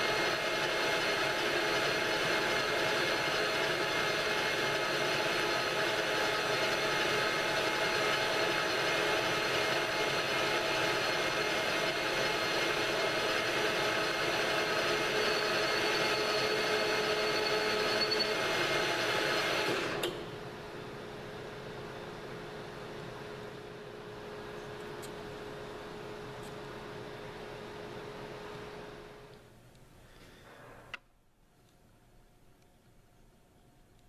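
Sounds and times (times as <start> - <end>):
metal lathe running: 0.0 - 20.0
thin high whine: 14.1 - 18.7.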